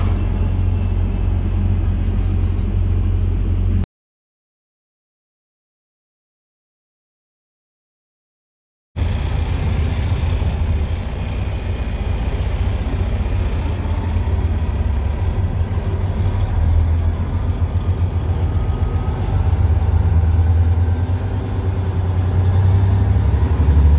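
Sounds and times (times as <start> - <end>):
diesel truck engine rumbling: 0.0 - 3.8, 9.0 - 23.9.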